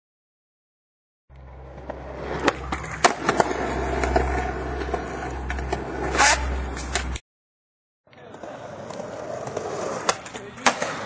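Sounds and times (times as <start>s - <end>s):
skateboard wheels rolling: 1.3s - 7.2s, 8.2s - 11.0s
skateboard clicks and knocks: 1.4s - 7.2s, 8.2s - 11.0s
scraping noise: 1.6s - 7.2s.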